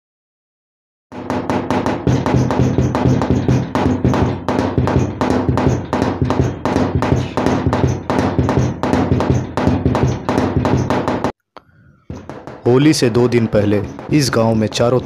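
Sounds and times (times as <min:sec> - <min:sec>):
dhol drum fast beat: 0:02.1 - 0:11.3.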